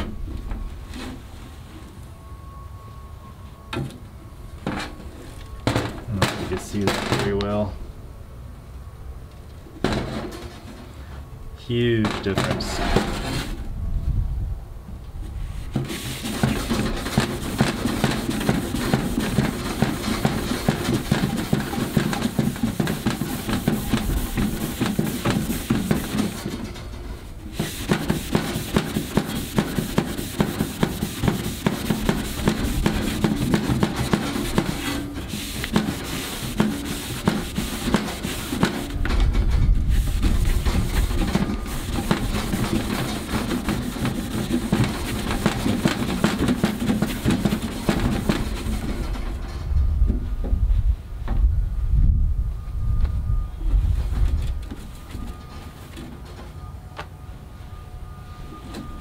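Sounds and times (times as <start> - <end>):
abrasive pad scratching steel: 4.7 - 7.6, 11.7 - 13.6, 15.5 - 49.6.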